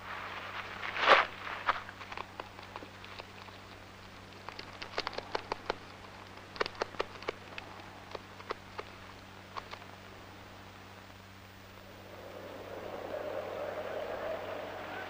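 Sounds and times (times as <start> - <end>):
dry grass crackling and rustling: 0.0 - 9.7
faint steady hum: 0.0 - 15.0.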